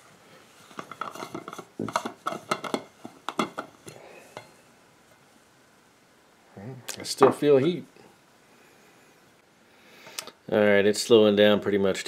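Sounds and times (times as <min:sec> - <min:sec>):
metal lid clinking and scraping: 0:00.7 - 0:04.5.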